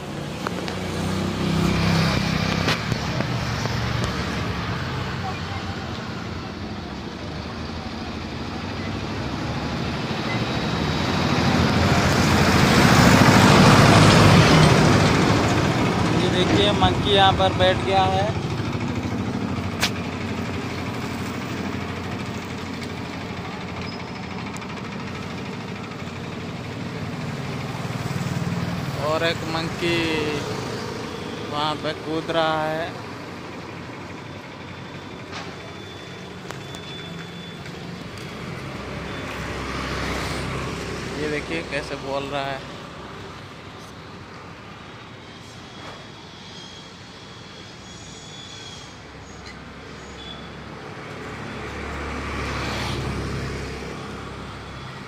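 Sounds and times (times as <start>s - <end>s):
vehicle passing by: 0.0s - 7.0s, 7.7s - 23.0s, 37.3s - 43.9s, 50.7s - 55.0s
road traffic noise: 0.0s - 55.0s.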